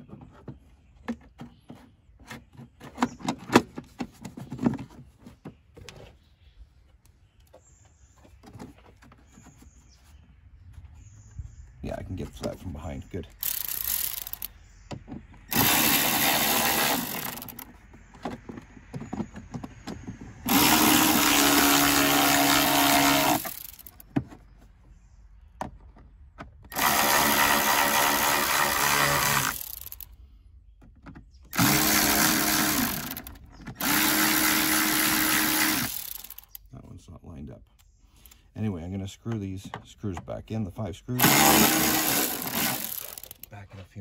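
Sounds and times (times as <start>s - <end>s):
electric ratchet motor spinning: 13.4s - 14.5s, 15.5s - 17.7s, 20.5s - 24.0s, 26.7s - 30.1s, 31.5s - 36.6s, 41.2s - 43.5s.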